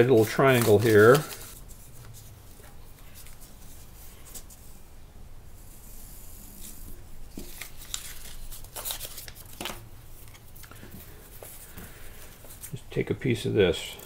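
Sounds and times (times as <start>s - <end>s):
cloth and paper rustling: 0.0s - 4.8s, 7.3s - 12.8s.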